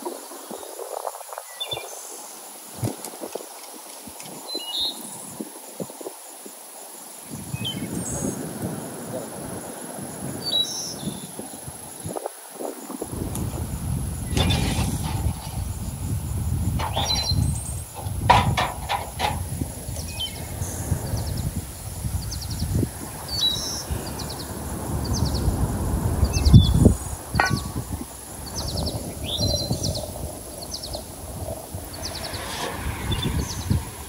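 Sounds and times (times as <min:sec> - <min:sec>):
small birds chirping: 0:07.2 - 0:08.4, 0:14.2 - 0:34.0
sharp knocks and clatters: 0:16.8 - 0:17.3, 0:18.0 - 0:19.4, 0:27.4 - 0:28.0
dull thump: 0:27.4 - 0:28.0.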